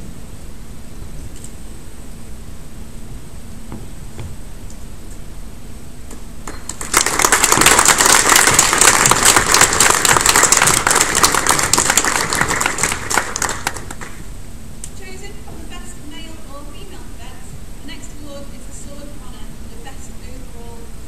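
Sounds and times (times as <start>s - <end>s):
audience applauding: 6.4s - 14.2s.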